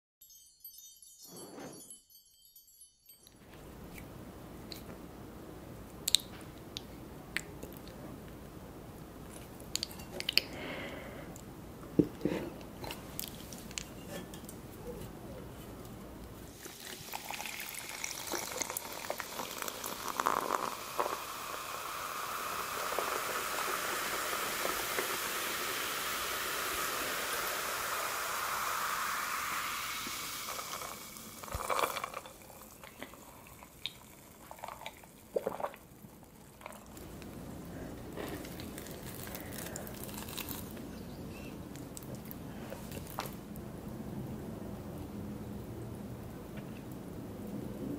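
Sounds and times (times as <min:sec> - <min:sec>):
soda fizzing over ice: 0:16.5 - 0:37.6, 0:38.3 - 0:40.8.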